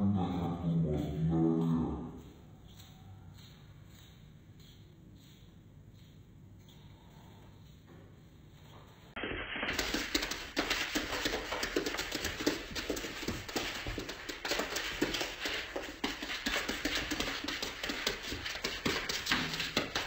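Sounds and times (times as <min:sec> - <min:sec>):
hooves and claws clicking on wood: 0:00.0 - 0:20.0.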